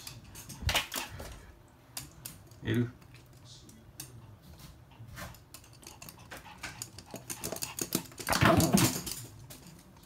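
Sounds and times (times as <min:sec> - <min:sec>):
dog claws clicking on hard floor: 0:00.0 - 0:10.0.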